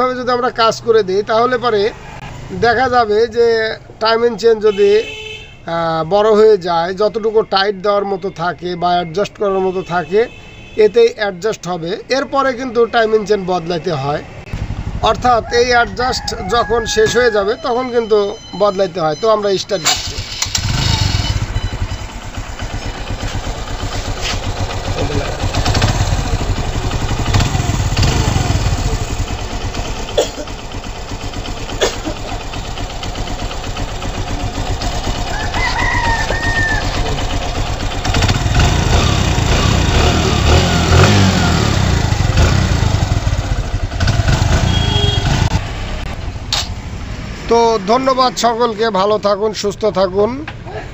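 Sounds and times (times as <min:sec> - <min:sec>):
motorcycle engine revving: 0:14.5 - 0:15.4, 0:19.8 - 0:48.4.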